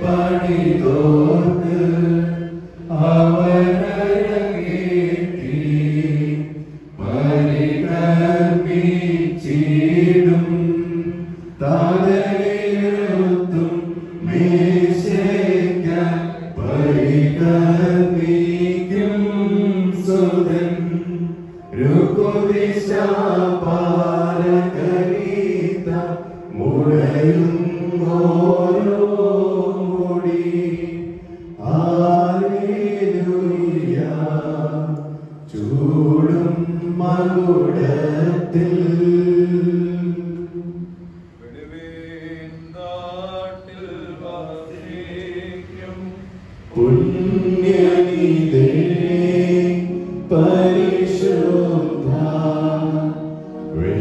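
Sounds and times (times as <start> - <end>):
man chanting: 41.4 - 47.4.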